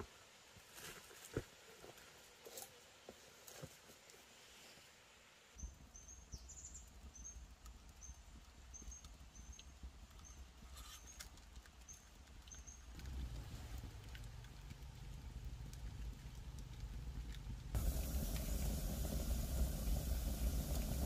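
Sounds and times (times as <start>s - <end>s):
low rumble: 13.7s - 21.0s.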